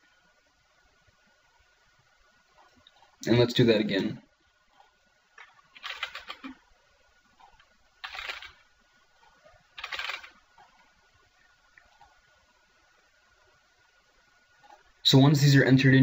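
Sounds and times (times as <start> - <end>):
keyboard typing: 4.8 - 6.6, 7.4 - 8.6, 9.2 - 10.9.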